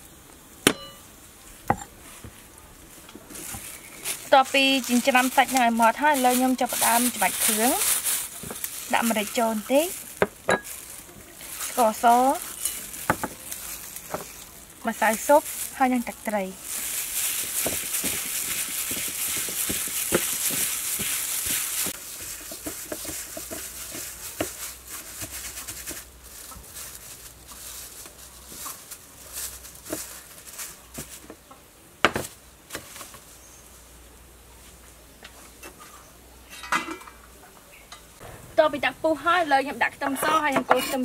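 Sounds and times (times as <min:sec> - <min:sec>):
gloved hand kneading minced meat: 0:01.9 - 0:31.4.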